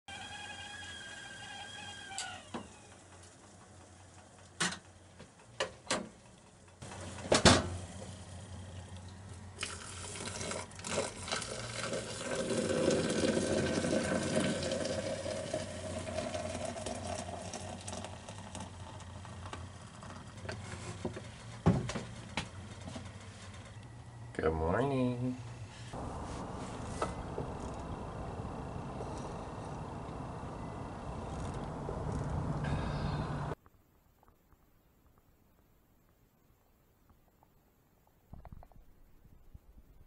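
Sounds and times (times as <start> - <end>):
boiling water pouring into glass: 9.6 - 20.4.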